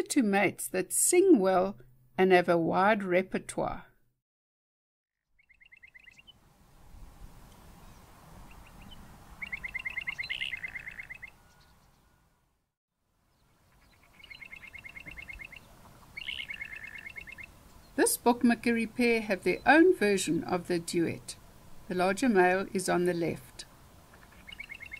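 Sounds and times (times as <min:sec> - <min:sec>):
birds duetting with clipped notes: 0:05.4 - 0:06.3, 0:09.4 - 0:12.0, 0:13.7 - 0:18.0, 0:24.1 - 0:24.9.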